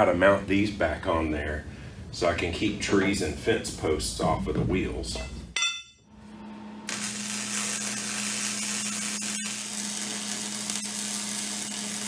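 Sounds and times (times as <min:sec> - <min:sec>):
steady low hum: 0:00.0 - 0:06.5
arc welding crackling hiss: 0:06.9 - 0:12.0.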